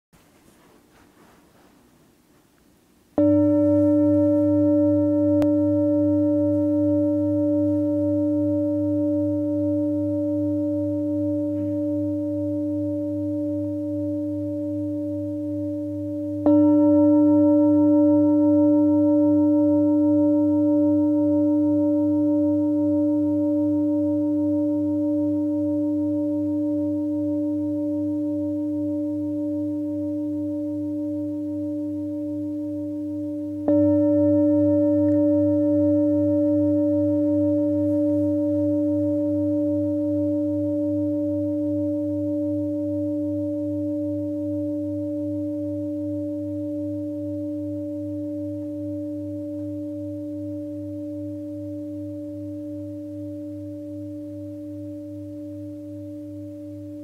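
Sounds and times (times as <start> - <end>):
singing bowl ringing: 3.2 - 57.0.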